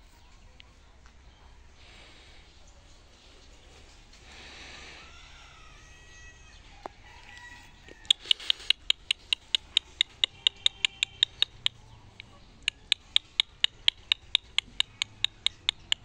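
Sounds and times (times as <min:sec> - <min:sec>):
small animal chirping: 0:07.9 - 0:16.0.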